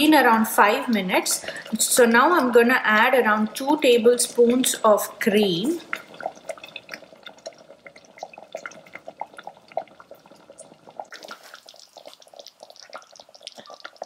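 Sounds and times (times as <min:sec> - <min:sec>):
thick sauce bubbling: 0:00.0 - 0:14.0.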